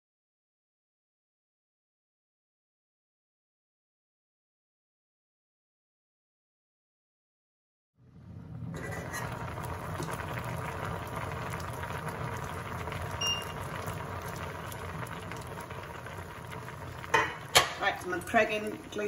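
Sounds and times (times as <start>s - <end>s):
mussels boiling in saucepan: 8.1s - 19.0s.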